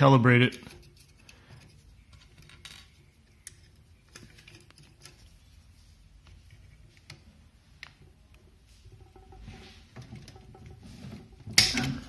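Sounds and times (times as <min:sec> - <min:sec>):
small parts clicking and tapping: 0:00.5 - 0:05.4.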